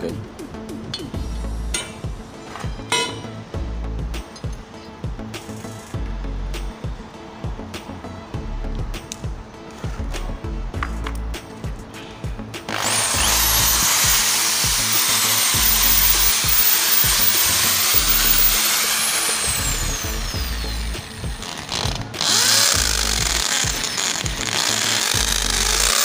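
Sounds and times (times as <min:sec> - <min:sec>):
faint background music: 0:00.0 - 0:26.0
hammer drill boring into concrete: 0:12.7 - 0:26.0.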